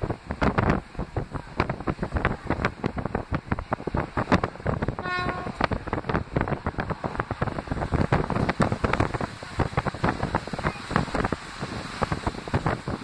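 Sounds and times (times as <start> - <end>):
train rail running noise: 0.0 - 13.0
wind buffeting microphone: 0.0 - 13.0
train horn note: 5.0 - 5.8.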